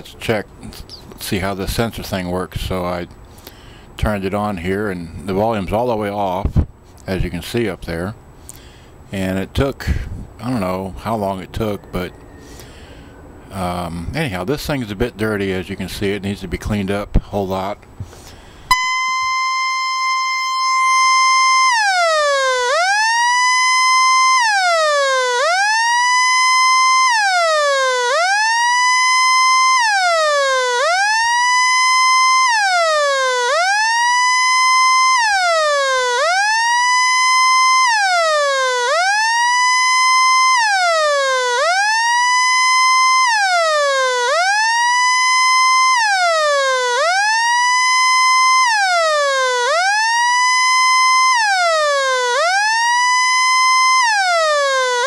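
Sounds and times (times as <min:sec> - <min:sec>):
electronic alarm tone wailing: 0:18.7 - 0:55.0.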